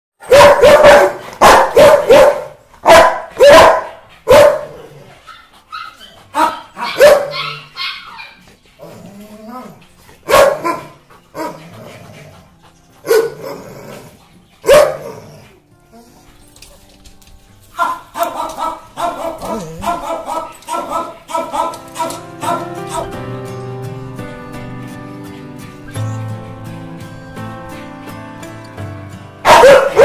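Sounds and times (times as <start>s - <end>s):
dog barking: 0.2s - 8.4s, 10.3s - 11.6s, 13.1s - 13.6s, 14.6s - 15.3s, 17.8s - 23.2s, 29.4s - 30.0s.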